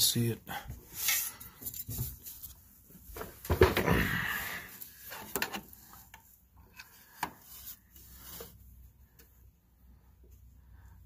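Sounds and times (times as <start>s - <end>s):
rubbing and scraping: 0.8s - 3.4s, 4.8s - 9.0s.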